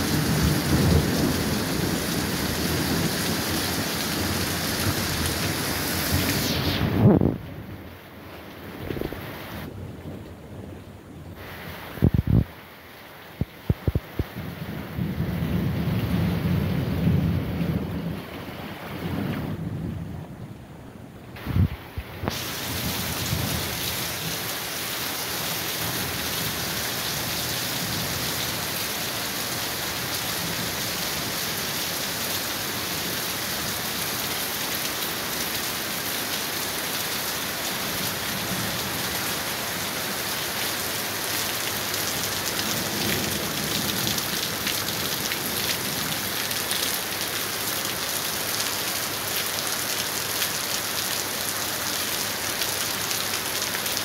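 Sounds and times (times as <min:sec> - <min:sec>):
heavy rain on street: 0:00.0 - 0:54.0
low thunder rumbling: 0:13.7 - 0:20.6.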